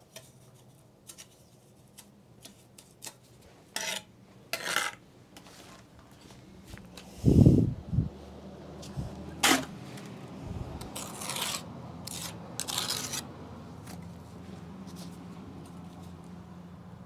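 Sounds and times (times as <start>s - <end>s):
trowel scraping mortar: 0.1s - 5.8s, 9.4s - 9.7s, 10.8s - 14.0s.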